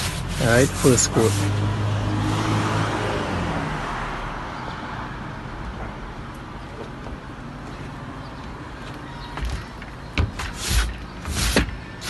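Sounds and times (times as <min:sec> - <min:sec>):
vehicle passing by: 0:00.3 - 0:06.2.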